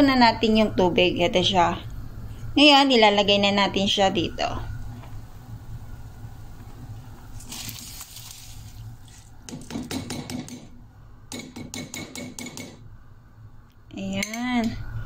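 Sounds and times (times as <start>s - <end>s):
rice sliding into water: 7.4s - 9.3s.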